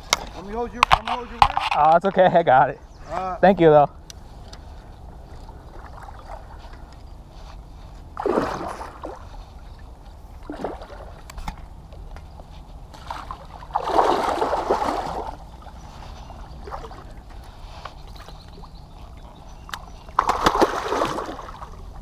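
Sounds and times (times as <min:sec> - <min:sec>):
fish splashing at water surface: 0:13.0 - 0:15.4, 0:20.1 - 0:21.7.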